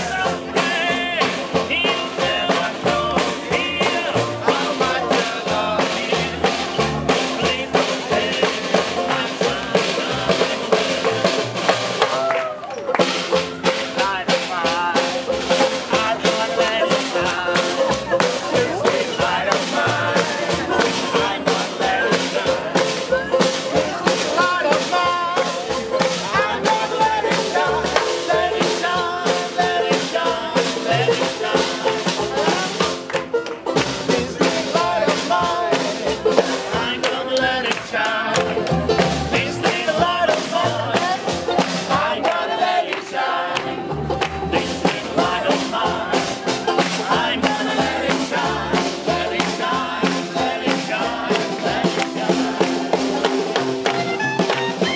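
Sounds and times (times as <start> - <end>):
people singing along: 0.0 - 54.9
snare drum played with sticks: 0.0 - 54.9
strummed banjo: 0.0 - 54.9
upright double bass: 0.0 - 54.9
clarinet: 53.5 - 54.9.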